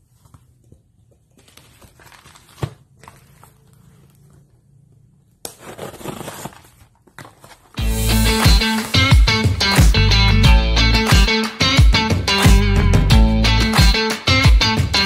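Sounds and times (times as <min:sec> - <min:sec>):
cardboard and tape rustling: 0:00.0 - 0:04.4, 0:05.4 - 0:07.8
tearing: 0:05.4 - 0:07.8.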